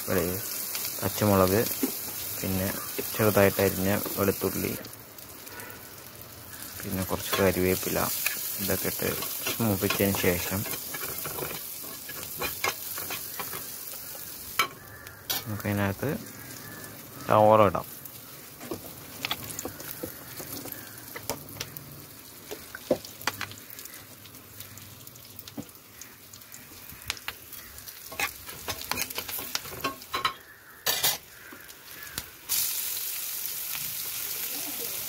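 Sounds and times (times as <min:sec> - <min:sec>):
food frying in hot oil: 0:00.0 - 0:35.0
oil crackles and pops: 0:00.0 - 0:35.0.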